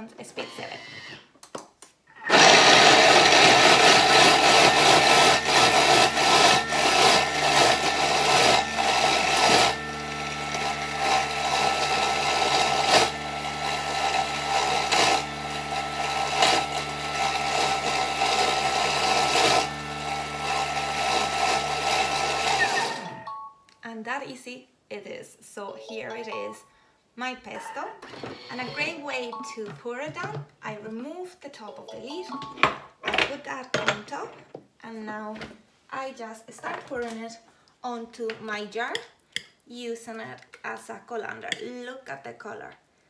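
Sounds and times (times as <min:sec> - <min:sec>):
food blender chopping nuts: 0:02.2 - 0:23.3.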